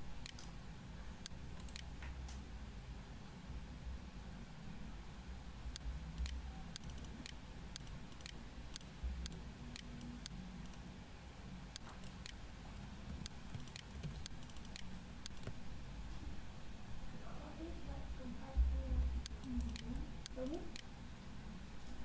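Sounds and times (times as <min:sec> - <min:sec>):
low steady hum: 0:00.0 - 0:22.0
computer mouse and key clicks: 0:00.2 - 0:00.6, 0:01.2 - 0:02.4, 0:05.7 - 0:10.9, 0:11.7 - 0:15.6, 0:19.2 - 0:20.9.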